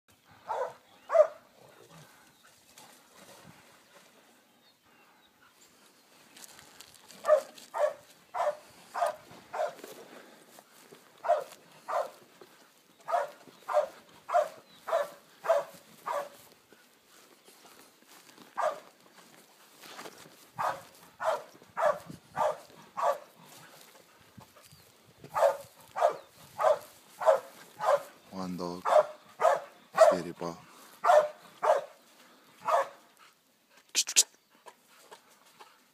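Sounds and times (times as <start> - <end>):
dog barking: 0.4 - 1.4, 7.2 - 9.8, 11.2 - 12.2, 13.0 - 16.4, 18.6 - 18.9, 20.6 - 23.3, 25.3 - 28.2, 28.8 - 30.3, 31.0 - 32.0, 32.6 - 33.0.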